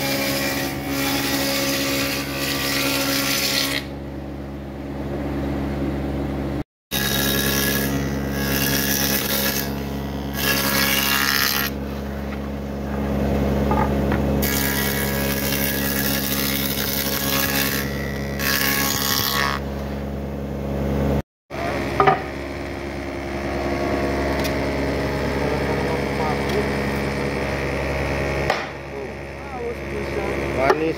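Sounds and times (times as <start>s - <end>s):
spindle moulder cutting wood: 14.4s - 19.6s
single knock: 28.5s - 28.8s.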